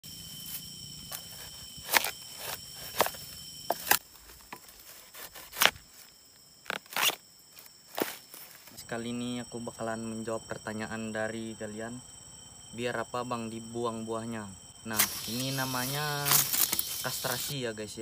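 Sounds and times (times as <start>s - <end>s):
high insect drone: 0.0s - 18.0s
bamboo pole snapping off bunches: 14.9s - 17.5s.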